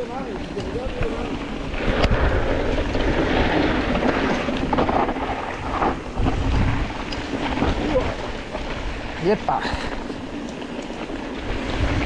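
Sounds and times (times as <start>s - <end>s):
mountain bike rumbling on trail: 0.0s - 12.0s
wind buffeting microphone: 0.0s - 12.0s
bike clicks and knocks: 9.8s - 12.0s.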